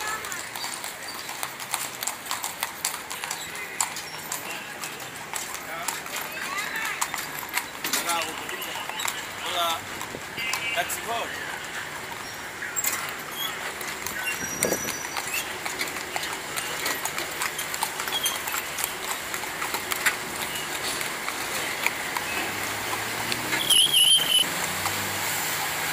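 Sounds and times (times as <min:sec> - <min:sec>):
horse hooves clip-clopping on asphalt: 0:00.0 - 0:25.9.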